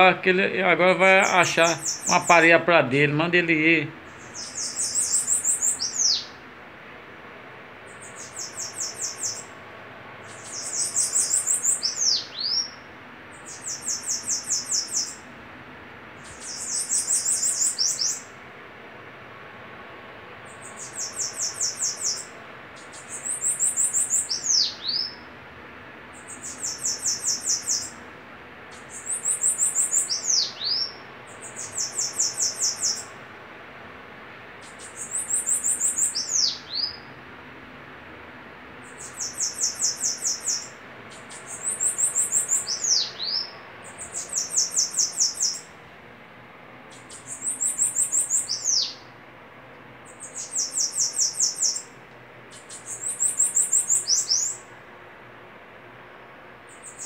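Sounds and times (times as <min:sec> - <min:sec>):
birds singing trilled phrases: 0:00.0 - 0:06.6, 0:07.8 - 0:15.3, 0:16.2 - 0:18.5, 0:20.4 - 0:25.4, 0:26.0 - 0:28.0, 0:28.6 - 0:33.2, 0:34.5 - 0:37.2, 0:38.8 - 0:45.8, 0:46.8 - 0:49.2, 0:50.0 - 0:54.8, 0:56.6 - 0:57.0.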